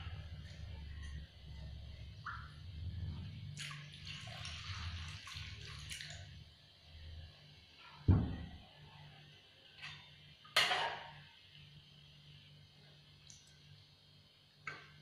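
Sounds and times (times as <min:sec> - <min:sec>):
dull thump: 0:08.1 - 0:08.5.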